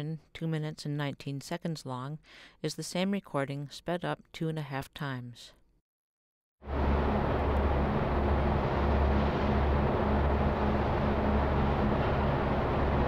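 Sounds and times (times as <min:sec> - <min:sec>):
wavering low hum: 0:06.6 - 0:13.0
tape rumble and hiss: 0:06.7 - 0:13.0.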